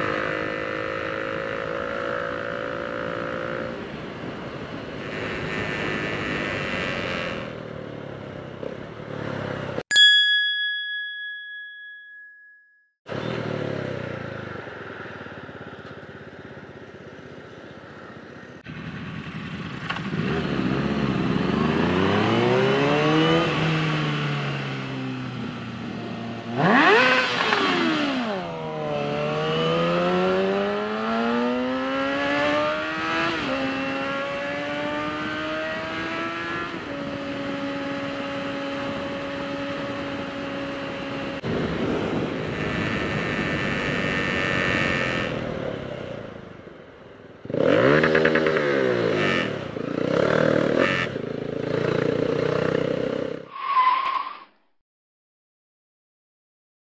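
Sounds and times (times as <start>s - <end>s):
motorcycle engine accelerating: 13.1s - 46.4s, 47.4s - 53.5s.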